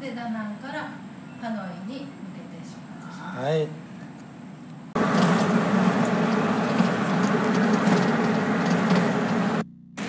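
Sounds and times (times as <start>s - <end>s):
car engine and road noise: 4.9s - 9.6s.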